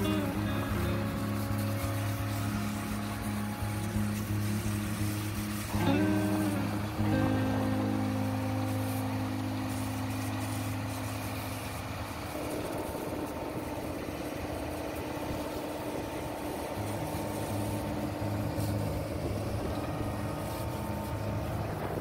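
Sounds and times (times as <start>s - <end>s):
engine running: 0.0s - 22.0s.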